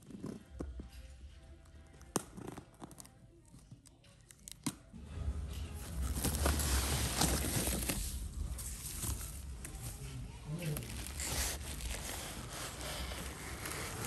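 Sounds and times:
paper packing crinkling and rustling: 5.9s - 14.0s.

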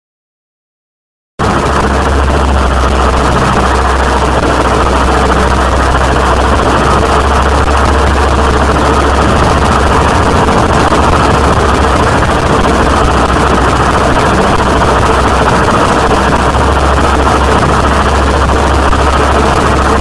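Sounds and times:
distorted noise wall: 1.4s - 20.0s
heavy low drone: 1.4s - 20.0s.

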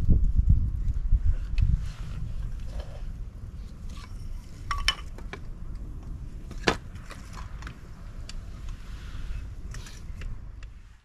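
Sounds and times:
wind rumbling on microphone: 0.0s - 11.0s
sharp clinks and knocks: 3.9s - 5.4s.

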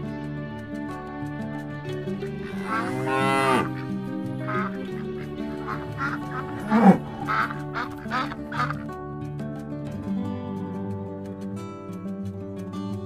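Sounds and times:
background music: 0.0s - 13.0s
goose-like honking calls: 2.4s - 8.8s.

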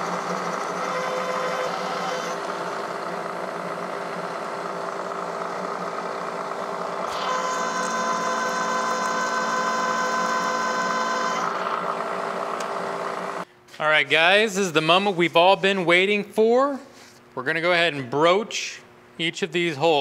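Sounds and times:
high-pitched machine whine: 0.0s - 13.4s
milling machine hum: 0.0s - 13.5s.

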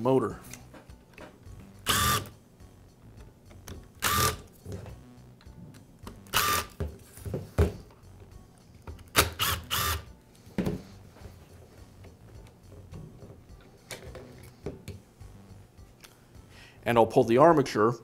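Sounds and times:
cordless driver whirring: 1.9s - 2.3s, 4.0s - 4.4s, 6.3s - 6.7s, 9.2s - 10.0s.

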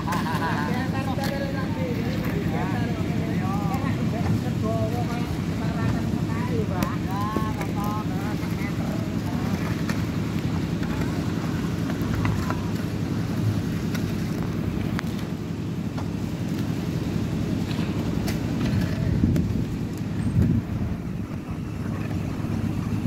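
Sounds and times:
shovels scraping wet concrete: 0.0s - 15.3s, 17.6s - 20.3s
machine engine droning: 0.0s - 23.0s.

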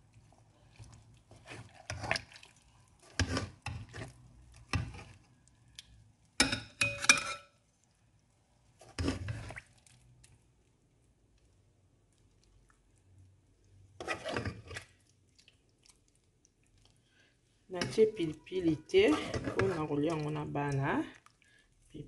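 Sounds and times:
spoon scraping a pan: 1.3s - 2.3s, 3.0s - 5.3s, 6.4s - 7.6s, 8.8s - 9.7s, 14.0s - 15.0s, 17.8s - 20.3s.

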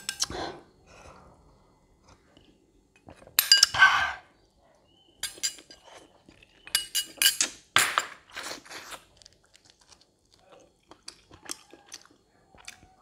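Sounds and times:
metal spoon clinking on ceramic bowl: 3.4s - 3.8s, 5.2s - 5.8s, 6.7s - 8.1s.

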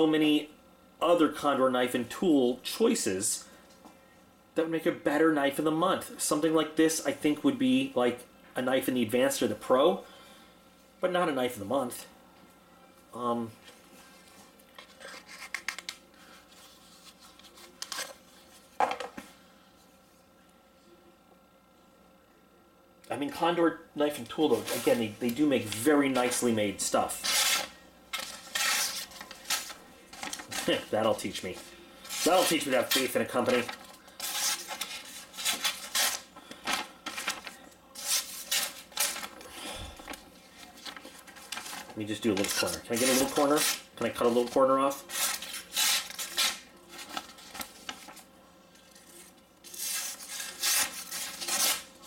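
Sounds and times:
knife tearing paper: 27.2s - 30.9s, 32.1s - 39.3s, 41.4s - 47.9s, 49.0s - 51.9s.

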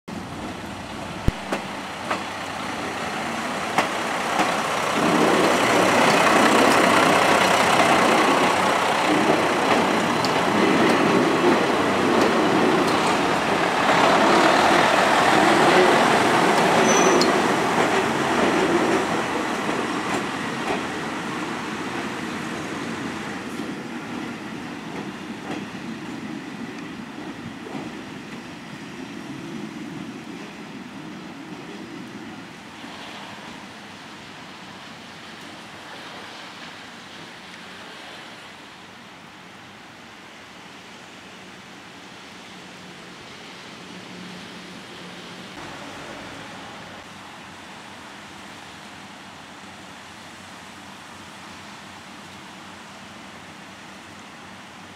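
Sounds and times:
diesel railcar passing: 0.1s - 54.9s
wheels on rails: 1.4s - 22.2s.

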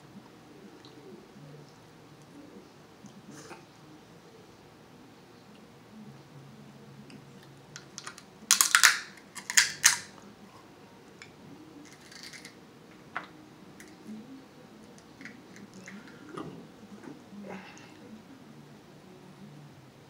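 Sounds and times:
shell clicks: 7.8s - 10.1s
crab shell cracking: 7.8s - 10.2s, 11.2s - 12.6s.

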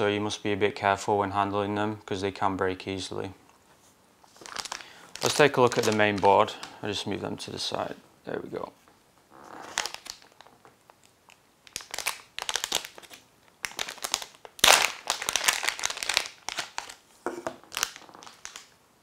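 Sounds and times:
plastic bag crinkling: 4.3s - 6.8s, 9.5s - 18.8s.

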